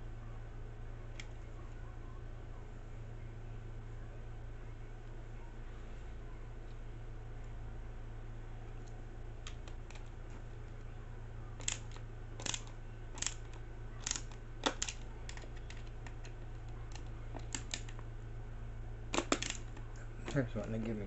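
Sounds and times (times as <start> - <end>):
screw clicking and creaking: 11.6 - 16.2.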